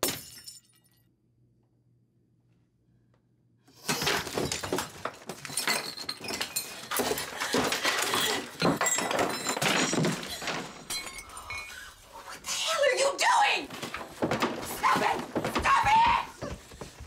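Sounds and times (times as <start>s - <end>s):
glass smashing and objects clattering: 0.0s - 1.0s, 3.8s - 12.1s.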